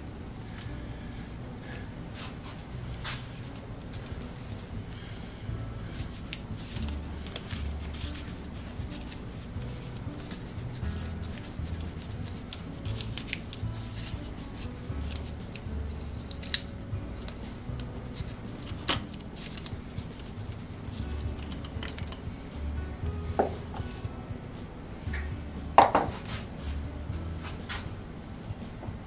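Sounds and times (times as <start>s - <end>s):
small parts clicking and rubbing: 5.9s - 22.2s.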